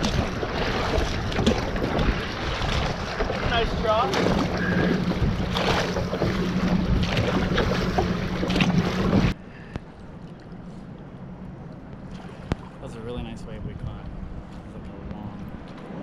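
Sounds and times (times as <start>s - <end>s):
paddle splashes: 0.0s - 9.4s
water rushing past a canoe: 0.0s - 9.4s
wind on microphone: 0.0s - 9.4s, 12.2s - 16.0s
open water washing: 0.0s - 16.0s.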